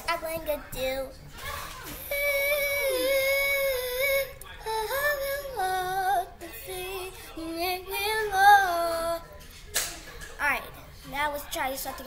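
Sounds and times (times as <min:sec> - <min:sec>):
girl singing: 0:00.0 - 0:09.4.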